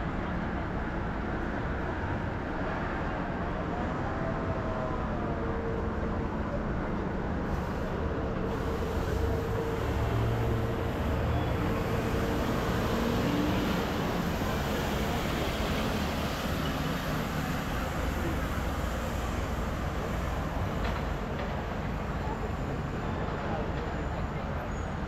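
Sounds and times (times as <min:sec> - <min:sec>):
rumble of passing vehicles: 0:00.0 - 0:25.0
vehicle humming: 0:07.0 - 0:24.6.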